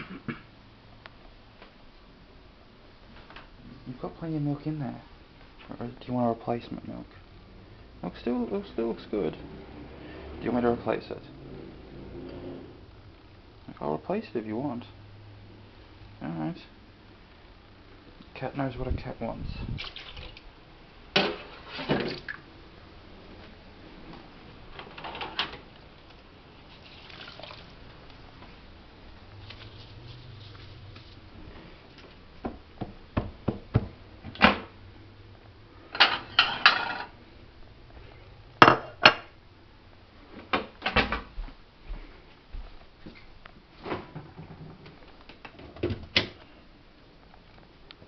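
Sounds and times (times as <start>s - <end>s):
dishes clinking in a steel sink: 36.0s - 37.1s.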